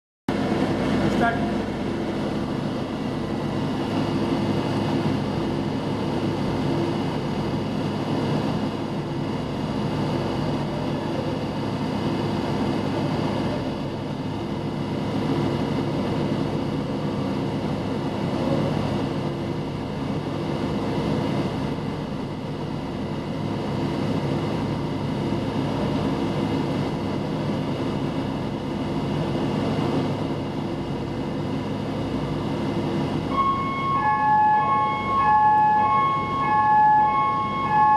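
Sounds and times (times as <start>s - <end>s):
engine-room machinery drone: 0.3s - 37.9s.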